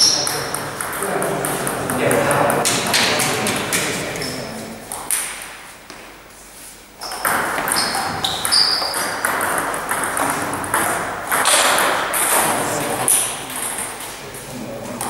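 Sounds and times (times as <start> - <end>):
table tennis ball knocking: 0.0 - 5.4, 7.0 - 14.1
noisy hall background: 0.0 - 15.0
short high squeaks: 7.0 - 9.2.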